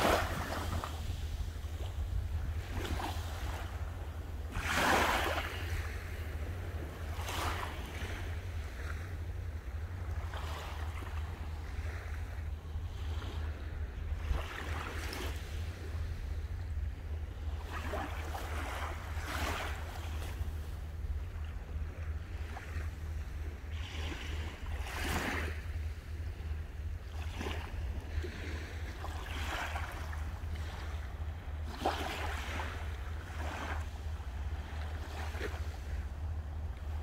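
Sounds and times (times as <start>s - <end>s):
sea waves washing onto shore: 0.0s - 9.2s
steady low rumble: 0.0s - 37.0s.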